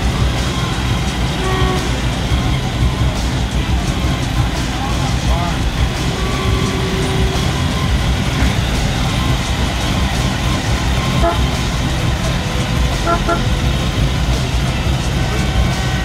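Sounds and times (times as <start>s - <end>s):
car engines rumbling: 0.0s - 16.0s
crowd voices: 0.0s - 16.0s
short car horn toots: 1.4s - 2.0s, 11.0s - 11.6s, 13.0s - 13.5s.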